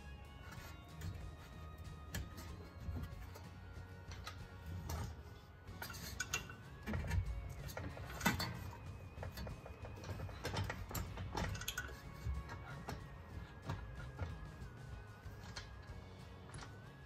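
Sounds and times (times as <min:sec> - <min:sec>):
background music: 0:00.0 - 0:17.0
metal clinks and knocks: 0:00.0 - 0:17.0
hand ratchet clicking: 0:05.8 - 0:14.5.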